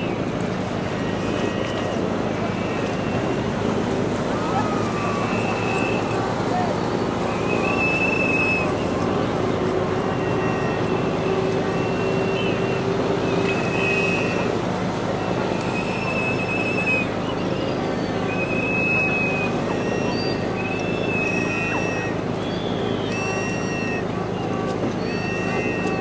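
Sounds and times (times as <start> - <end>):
outboard engine running: 0.0 - 26.0
water splashing: 0.0 - 26.0
wind: 0.0 - 26.0.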